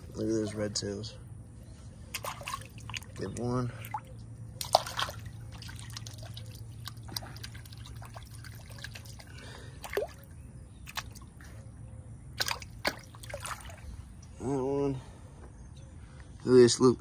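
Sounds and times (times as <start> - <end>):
steady low hum: 0.0 - 16.5
water splashes and drips: 2.1 - 11.4, 12.4 - 14.0.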